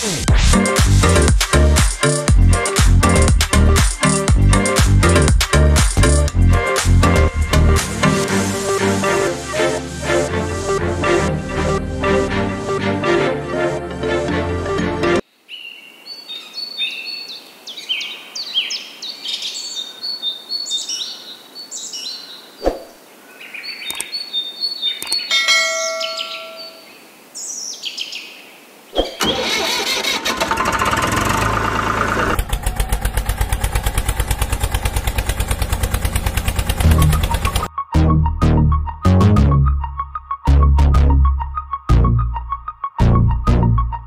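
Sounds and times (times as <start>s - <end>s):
small birds chirping: 15.4s - 29.2s
sharp clicks: 23.9s - 24.1s
engine running and pulsing: 29.2s - 37.7s.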